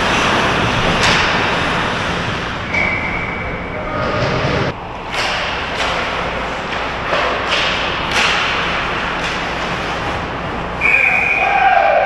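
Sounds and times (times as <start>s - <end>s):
hockey sticks and puck knocking: 5.0s - 9.8s.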